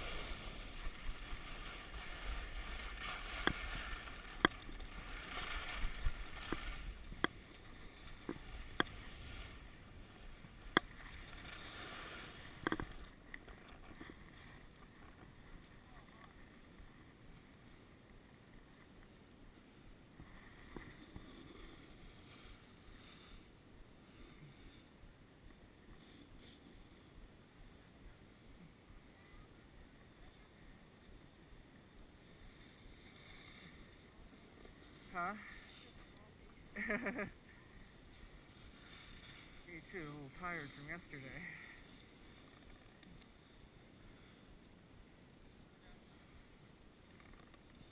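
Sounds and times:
skis sliding on snow: 0.0 - 17.8, 20.2 - 23.5, 25.6 - 27.2, 29.2 - 44.5.

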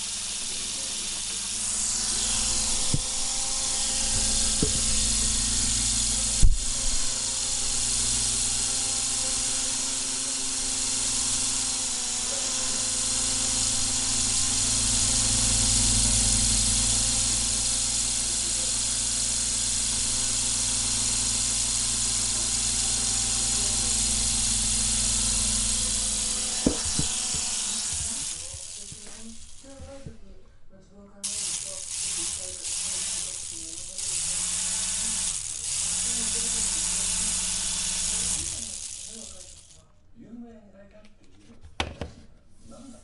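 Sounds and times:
toy helicopter whirring: 0.0 - 30.0, 31.2 - 39.8
sharp knock: 26.6 - 27.5.

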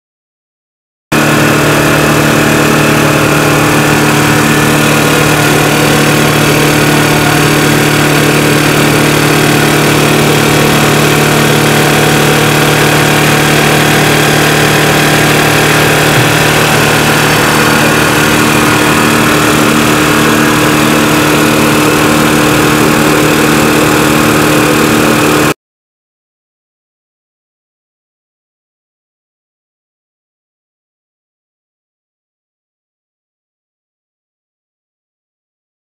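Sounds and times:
vibratory screener humming: 1.2 - 25.6.

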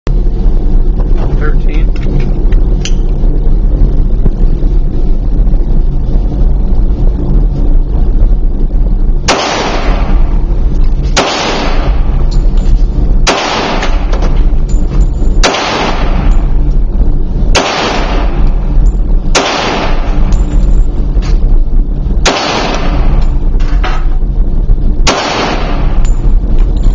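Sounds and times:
steady low rumble: 0.0 - 26.9
pistol shots echoing: 15.4 - 16.3.

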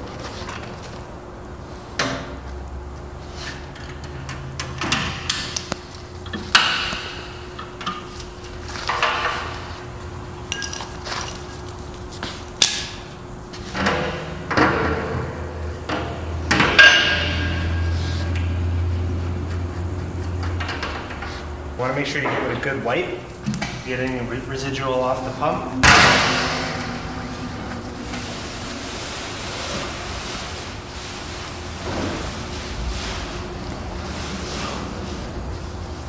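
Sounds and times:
low hum: 24.1 - 31.4.

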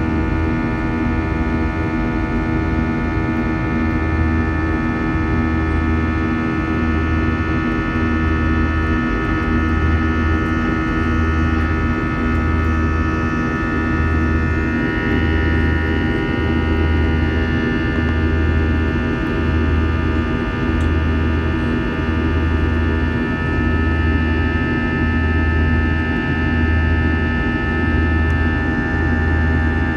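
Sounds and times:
jet engines rushing and whining: 0.0 - 29.9
low pulsing hum: 0.0 - 29.9.

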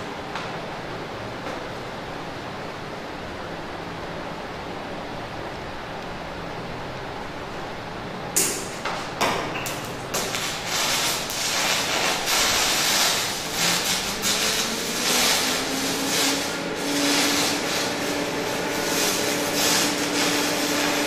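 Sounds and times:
welding arc crackling hiss: 8.4 - 21.0.

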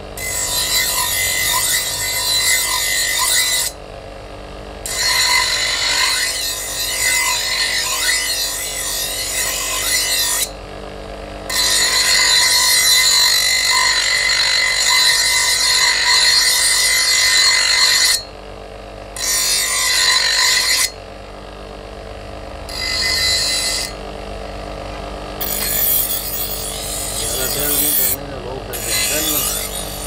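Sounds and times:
grinder grinding steel blade: 0.0 - 3.8, 4.8 - 10.6, 11.5 - 18.3, 19.2 - 21.0, 22.7 - 24.0, 25.4 - 30.0
grinder motor hum: 0.0 - 30.0.

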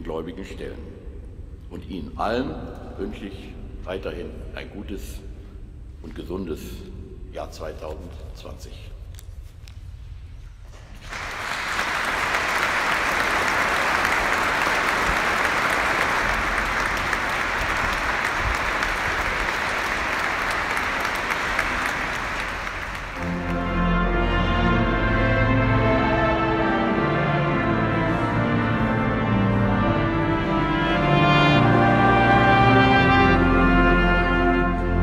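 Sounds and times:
audience clapping: 10.9 - 24.3
music with long held notes: 13.2 - 35.0.

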